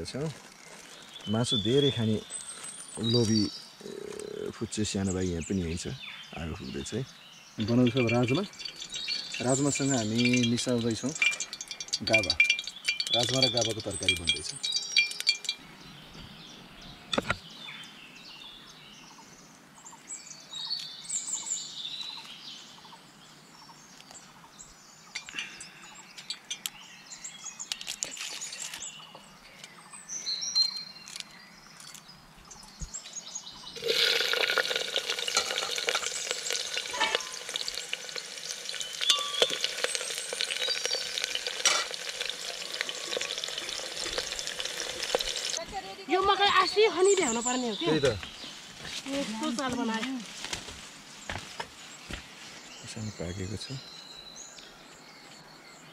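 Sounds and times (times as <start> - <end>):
birds chirping: 0.0 - 55.9
food sizzling in hot oil: 7.6 - 15.5, 33.8 - 45.6
utensils clinking: 7.6 - 15.6, 33.8 - 45.6.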